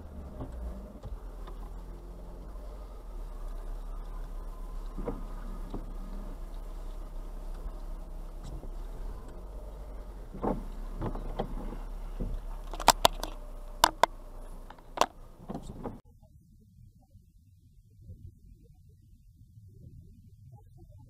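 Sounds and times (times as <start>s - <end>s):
car hum from inside cabin: 0.0s - 21.0s
sharp clicks: 12.2s - 15.9s.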